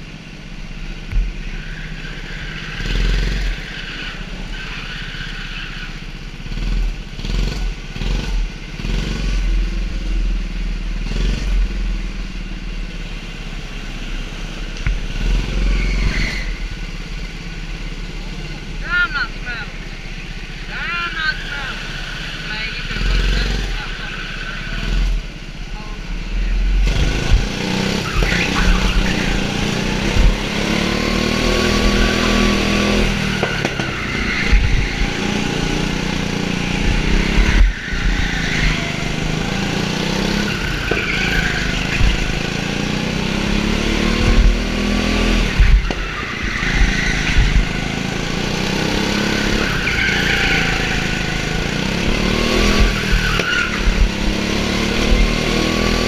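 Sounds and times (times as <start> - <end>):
go-kart engine revving: 0.0 - 56.0
low rumble: 24.9 - 40.0, 43.6 - 49.6.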